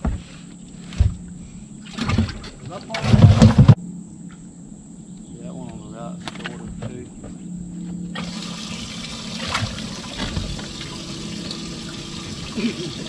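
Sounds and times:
water pouring and splashing: 0:01.9 - 0:03.7, 0:08.2 - 0:13.0.

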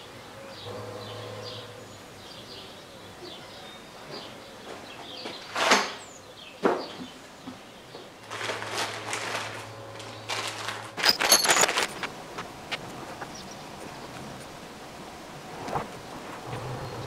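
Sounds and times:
plastic bags rustling: 0:08.0 - 0:13.3
towel shaken out: 0:08.2 - 0:12.1
metal bolts and washers clinking: 0:10.9 - 0:12.1.

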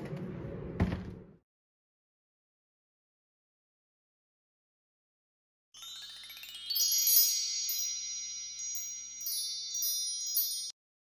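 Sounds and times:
sparkly chime sound effect: 0:05.8 - 0:10.8.

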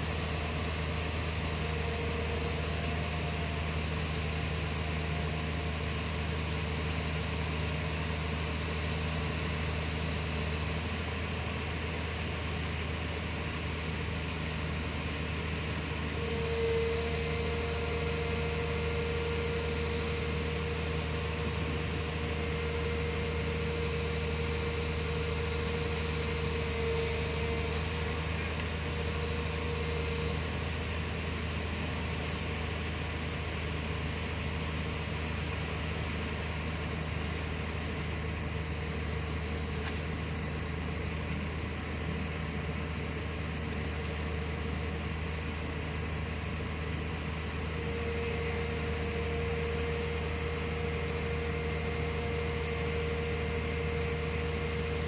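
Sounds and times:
diesel engine running: 0:00.0 - 0:55.0
high steady whine: 0:00.0 - 0:55.0.

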